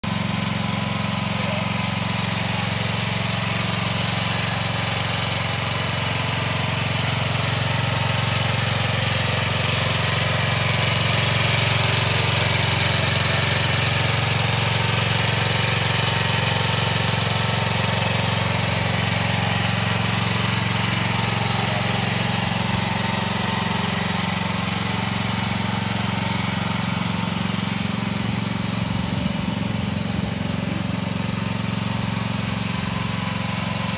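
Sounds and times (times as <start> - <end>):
mini excavator engine idling: 0.0 - 33.9.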